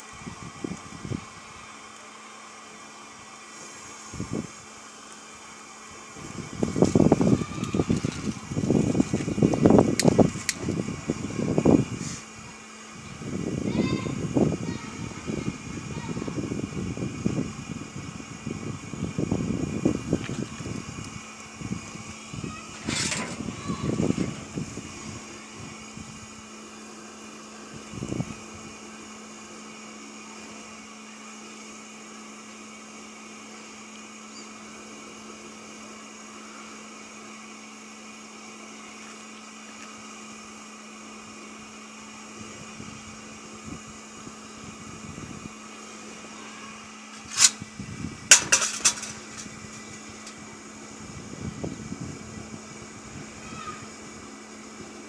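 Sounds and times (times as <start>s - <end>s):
electric blower humming: 0.0s - 55.0s
gas burning at a flare: 0.0s - 55.0s
sharp clicks: 10.0s - 10.6s.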